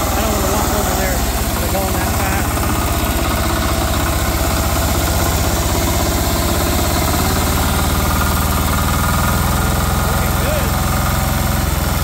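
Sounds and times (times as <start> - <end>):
diesel engine running at high speed: 0.0 - 12.0.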